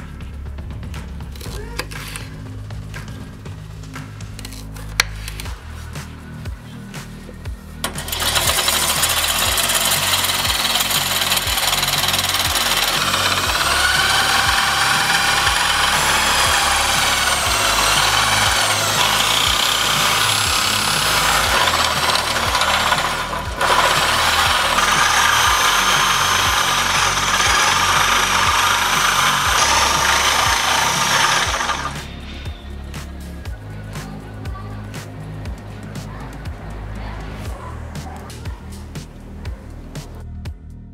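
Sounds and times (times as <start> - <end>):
background music with steady beat: 0.0 - 40.9
electric drill motor whining: 7.9 - 32.1
meat grinder crushing vegetables: 7.9 - 32.1.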